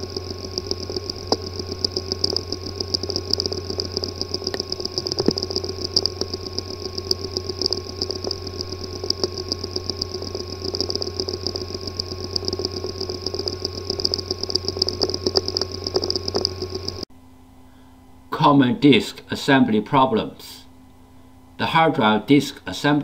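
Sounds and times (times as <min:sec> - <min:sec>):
failing hard drive buzzing: 0:00.0 - 0:17.1
hard drive clicking: 0:00.0 - 0:17.1.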